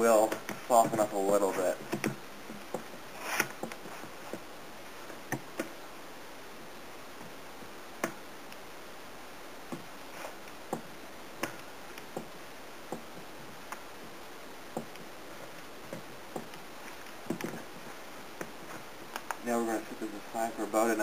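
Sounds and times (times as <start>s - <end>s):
steady faint hiss: 0.0s - 21.0s.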